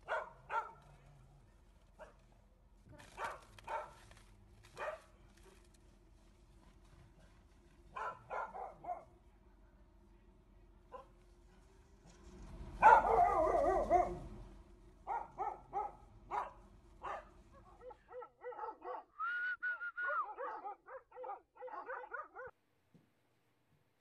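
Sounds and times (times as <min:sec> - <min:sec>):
dogs barking: 0:00.0 - 0:00.9, 0:03.0 - 0:04.0, 0:04.7 - 0:05.2, 0:07.9 - 0:09.2, 0:10.9 - 0:11.2, 0:12.8 - 0:14.4, 0:15.0 - 0:19.2, 0:20.0 - 0:22.6
dog whining: 0:20.0 - 0:20.6.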